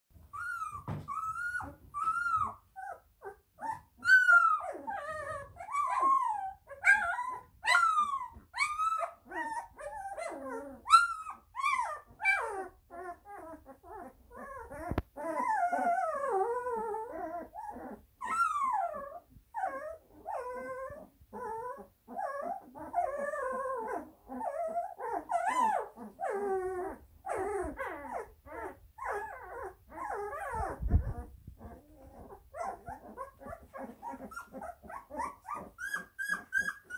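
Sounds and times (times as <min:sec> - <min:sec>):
puppies whimpering and squealing: 0:00.2 - 0:36.9.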